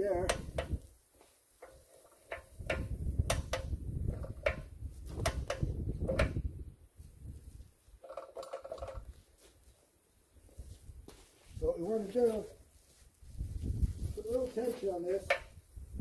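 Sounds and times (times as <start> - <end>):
ratchet handle clicking: 1.6 - 6.4.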